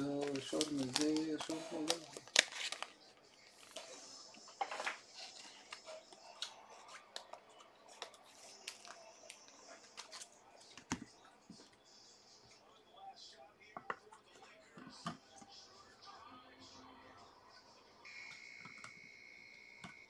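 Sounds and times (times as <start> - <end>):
cards and packaging handled: 0.0 - 11.7.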